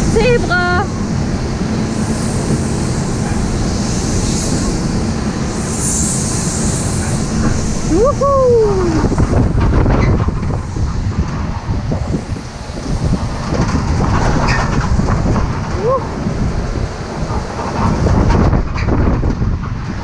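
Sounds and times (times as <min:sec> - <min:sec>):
ride mechanical rumble: 0:00.0 - 0:20.0.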